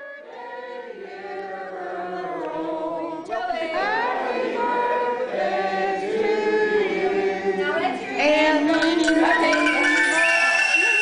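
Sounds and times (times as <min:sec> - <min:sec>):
choir singing: 0:00.0 - 0:08.7.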